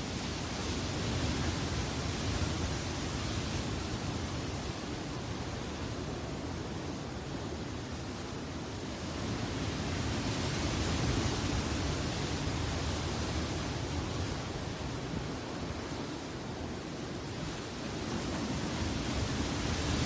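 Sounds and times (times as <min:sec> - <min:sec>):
ocean surf on rocks: 0:00.0 - 0:20.0.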